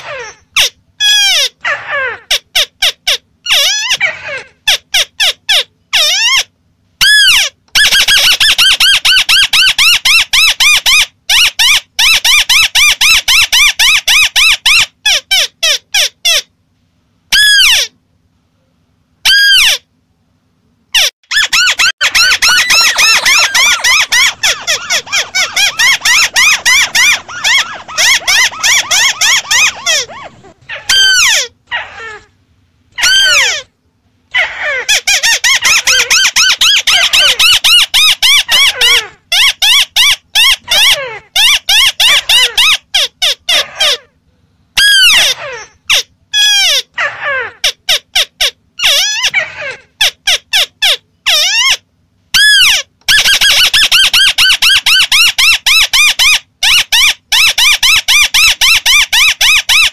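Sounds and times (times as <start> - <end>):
bird chattering high notes: 21.0 - 31.5.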